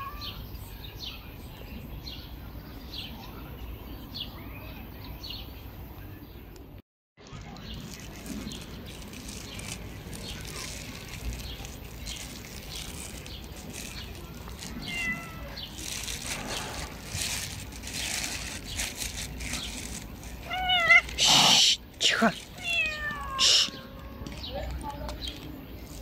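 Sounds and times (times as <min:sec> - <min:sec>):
cat meowing: 0:00.0 - 0:00.4, 0:14.8 - 0:15.6, 0:20.4 - 0:21.6, 0:22.6 - 0:24.3.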